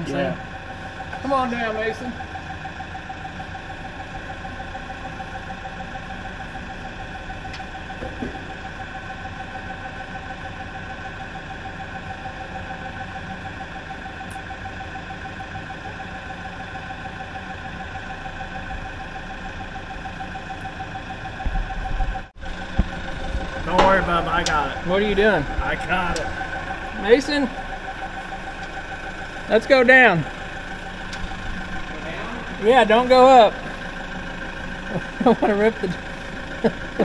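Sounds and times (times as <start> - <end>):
forklift engine idling: 0.0 - 37.0
steady whine: 0.0 - 37.0.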